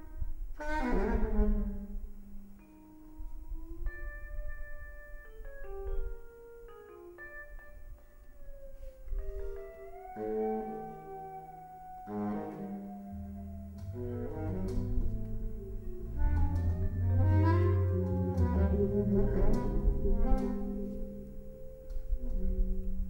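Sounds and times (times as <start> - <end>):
instrumental music with bass line: 0.0 - 23.0.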